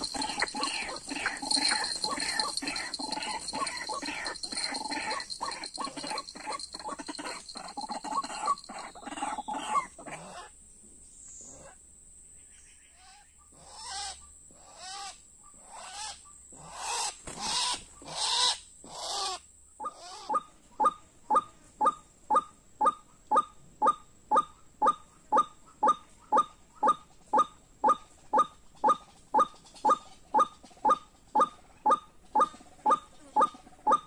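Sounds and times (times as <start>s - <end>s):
waterhen calls: 0.0s - 10.5s.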